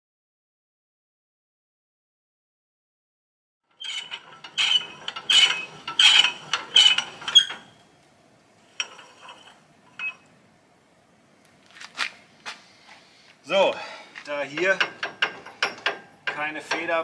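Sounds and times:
winch gears clicking and clanking: 3.7s - 7.9s, 8.7s - 10.3s, 14.3s - 17.0s.

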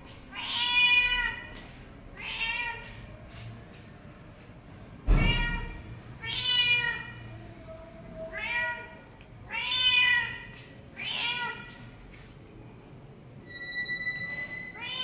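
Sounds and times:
cat meowing: 0.3s - 1.6s, 2.2s - 2.9s, 5.2s - 7.2s, 8.3s - 11.7s, 14.7s - 15.0s.

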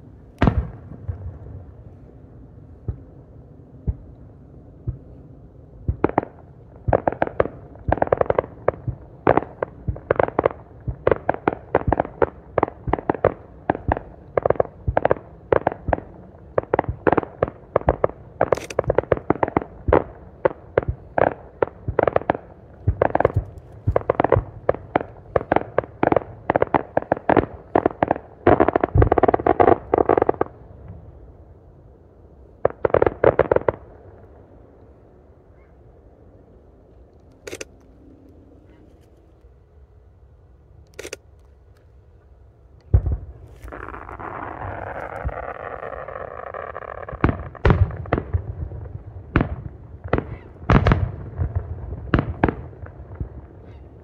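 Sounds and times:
fireworks bursting: 6.0s - 31.1s, 42.9s - 53.9s.

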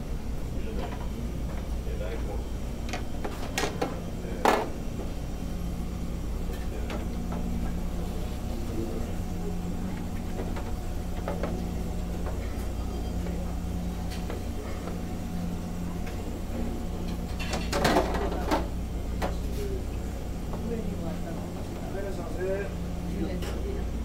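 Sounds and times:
ship machinery hum: 0.0s - 24.0s
dishes and trays clattering: 17.1s - 18.7s.

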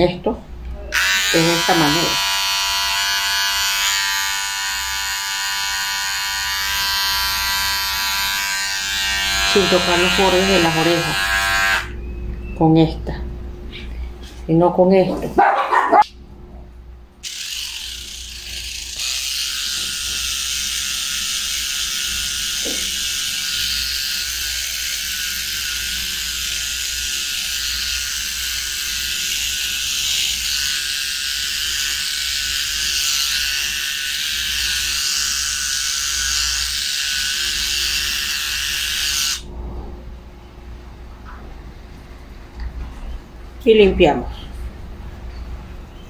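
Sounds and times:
electric trimmer buzzing: 0.9s - 12.0s, 17.2s - 39.5s.

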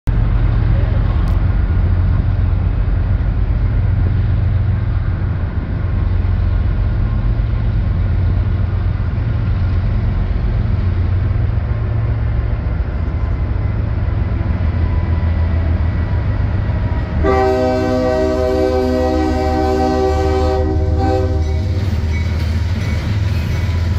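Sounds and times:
diesel locomotive rumble: 0.0s - 23.9s
locomotive air horn: 17.2s - 21.9s.

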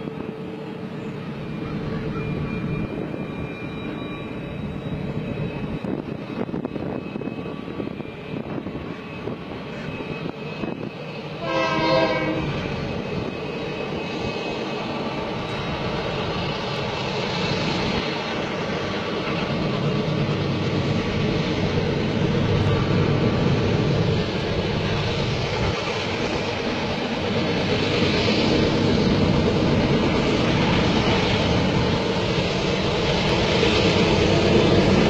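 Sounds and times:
train rumbling: 0.0s - 35.0s
locomotive horn: 11.4s - 12.6s.

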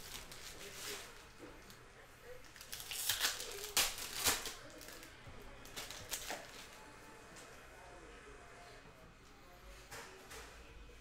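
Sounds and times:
wrapper crinkling as torn open: 2.4s - 6.7s.

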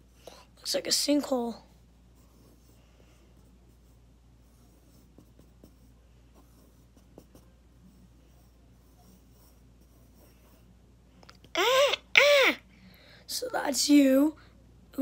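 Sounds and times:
pencil scratching on paper: 1.2s - 10.8s.

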